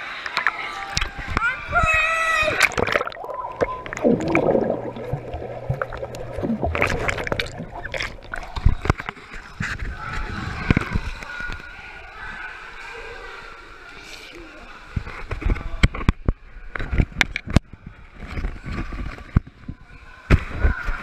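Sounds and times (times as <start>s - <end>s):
pool water gurgling and sloshing: 0.0s - 21.0s
water splashes: 0.3s - 11.4s.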